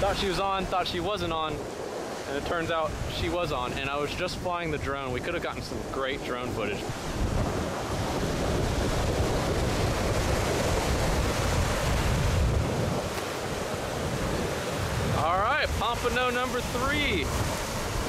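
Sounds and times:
surf breaking on beach: 0:00.0 - 0:18.0
wind buffeting microphone: 0:00.0 - 0:18.0.

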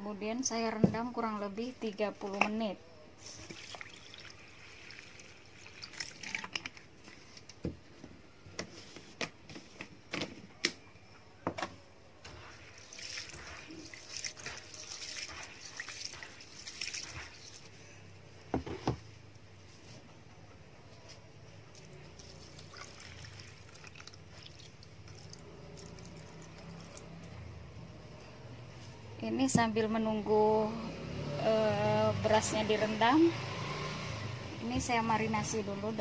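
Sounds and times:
water splashing in plastic bowl: 0:03.4 - 0:06.8, 0:12.7 - 0:17.7, 0:21.8 - 0:27.3.

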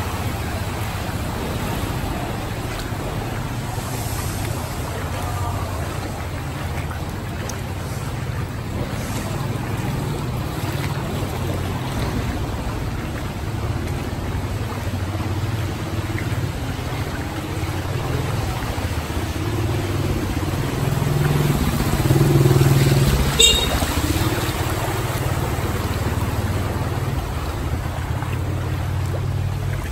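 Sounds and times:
water sloshing: 0:00.0 - 0:29.9
motorbike engine running: 0:21.6 - 0:24.2.

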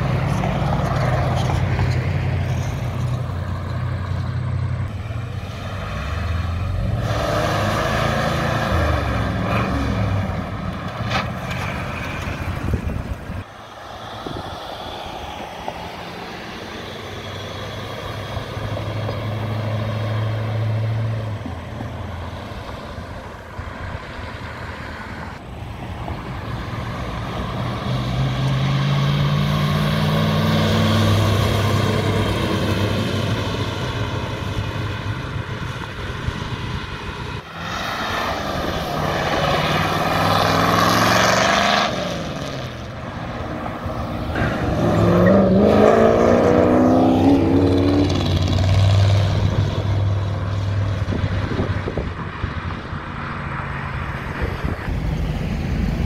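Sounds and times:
cars driving past: 0:00.0 - 0:56.0
engine accelerating: 0:26.4 - 0:56.0.

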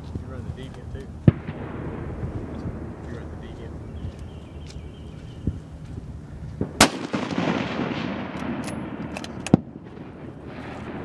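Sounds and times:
rifle shot with echo: 0:01.2 - 0:04.6, 0:06.5 - 0:11.0.

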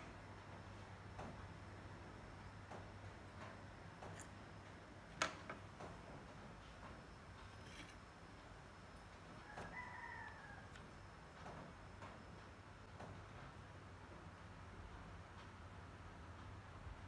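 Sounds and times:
faint rooster crowing: 0:09.2 - 0:11.7.

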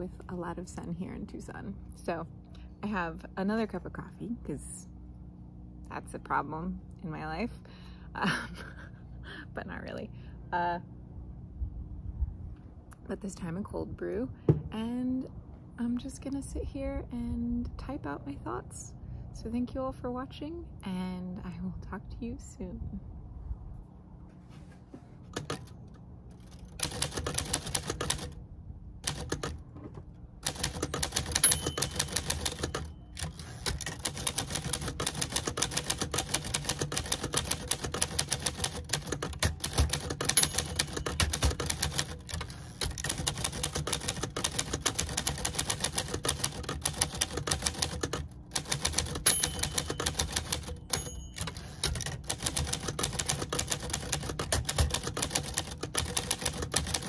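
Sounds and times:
typewriter keys striking: 0:25.3 - 0:25.8, 0:26.4 - 0:28.4, 0:29.0 - 0:29.6, 0:30.4 - 0:57.0.

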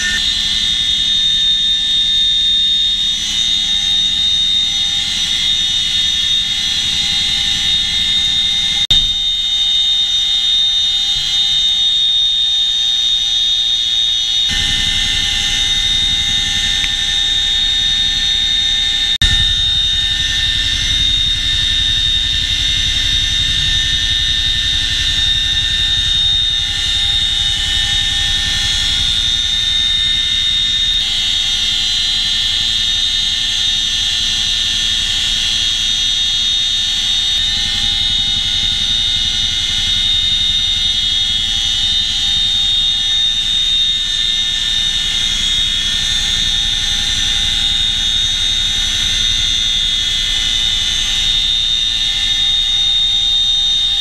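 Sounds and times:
helicopter rotor transmission whine: 0:00.0 - 0:54.0
low rumble: 0:19.2 - 0:28.4.

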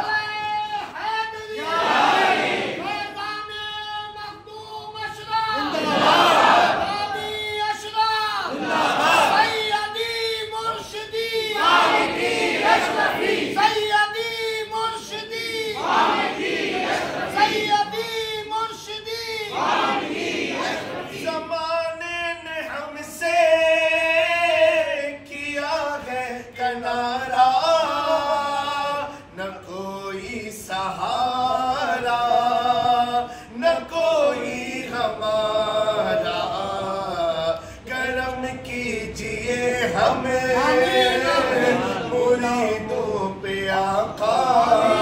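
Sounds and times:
man singing unaccompanied: 0:21.3 - 0:45.0.

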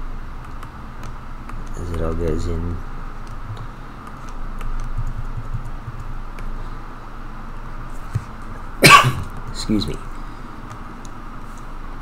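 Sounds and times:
low room hum: 0:00.0 - 0:12.0
person coughing: 0:08.8 - 0:09.3.

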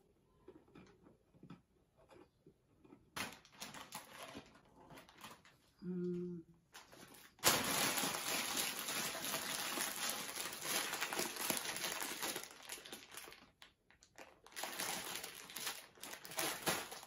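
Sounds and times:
plastic bag crinkling: 0:03.2 - 0:05.6, 0:06.7 - 0:17.0.

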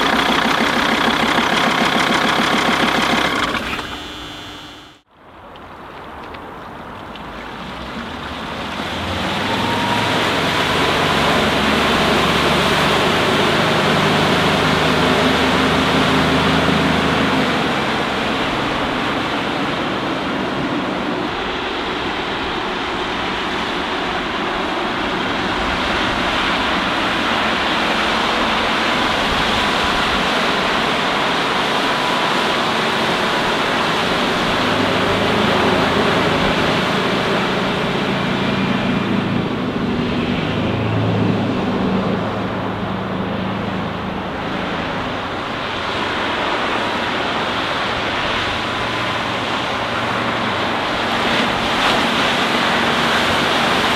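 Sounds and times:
rushing boat wake: 0:00.0 - 0:05.0, 0:05.7 - 0:53.9
motorboat engine humming: 0:00.0 - 0:20.8.

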